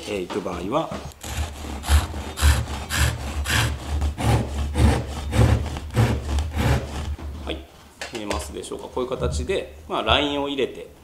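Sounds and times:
hand saw cutting wood: 1.1 - 7.5.

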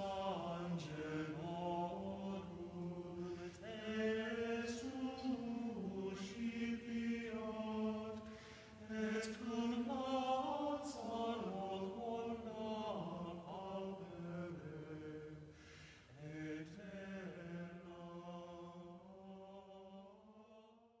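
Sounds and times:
slow sung chant: 0.0 - 21.0
singer breathing: 8.2 - 8.8, 15.5 - 16.2.

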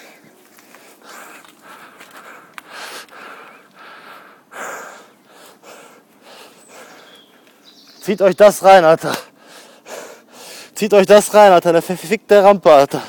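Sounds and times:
person breathing hard: 0.0 - 7.2, 9.3 - 10.8.

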